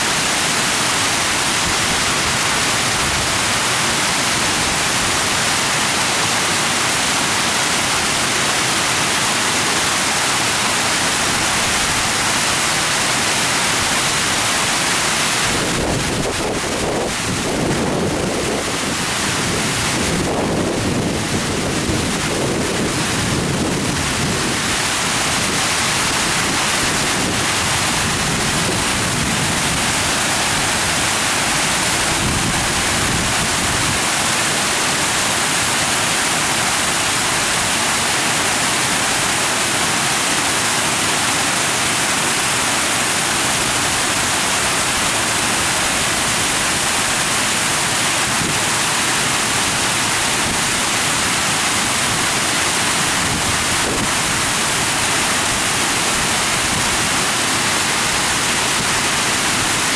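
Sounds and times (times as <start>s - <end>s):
steady rushing hiss: 21.7s - 59.9s.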